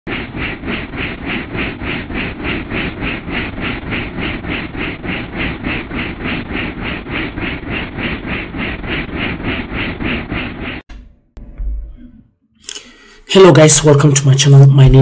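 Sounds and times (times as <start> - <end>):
helicopter rotor beating: 0.0 - 11.0
helicopter engine rumble: 0.1 - 10.9.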